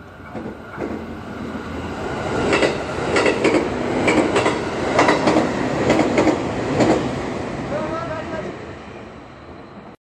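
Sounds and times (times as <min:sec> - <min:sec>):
train running rumble: 0:00.2 - 0:08.5
train wheels clacking over rail joints: 0:02.4 - 0:07.1.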